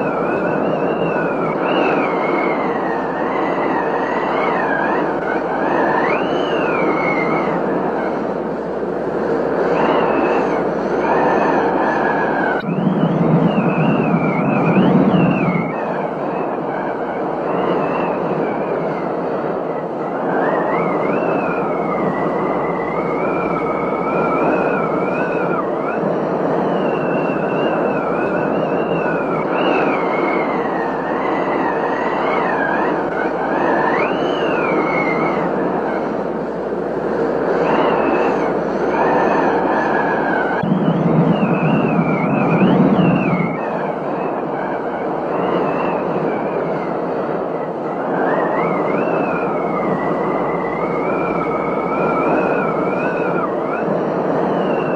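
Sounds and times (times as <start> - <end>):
high whistling tone: 0.0 - 8.6, 9.3 - 54.9
deep rumble: 12.4 - 15.7, 40.4 - 43.6.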